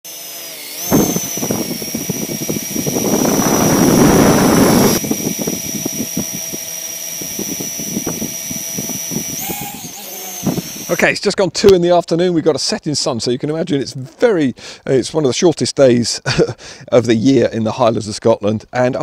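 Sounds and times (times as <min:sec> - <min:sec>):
drone propellers whining: 0:00.1 - 0:11.0
crackling wind buffeting: 0:00.9 - 0:06.6
loud rushing noise: 0:02.9 - 0:05.0.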